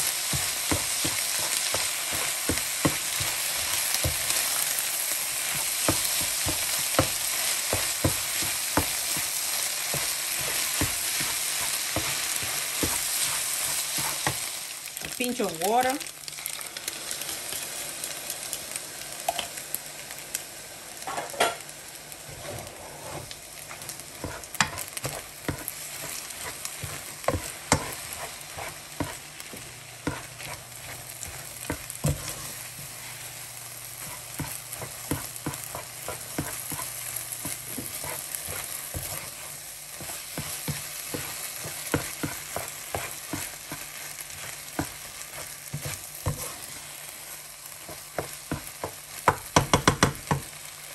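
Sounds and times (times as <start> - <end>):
food sizzling in frying pan: 0.0 - 50.9
spoon scraping against pan: 22.3 - 33.2.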